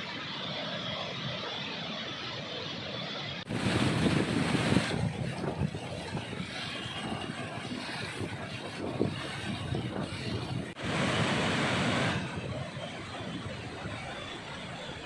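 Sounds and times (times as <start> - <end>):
wind buffeting microphone: 3.4 - 15.0
floodwater rushing: 3.5 - 15.0.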